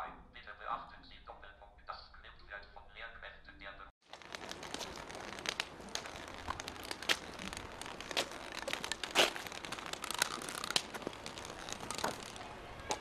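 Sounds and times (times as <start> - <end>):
footsteps: 4.1 - 13.0
cane tapping and scraping on paving: 4.2 - 13.0.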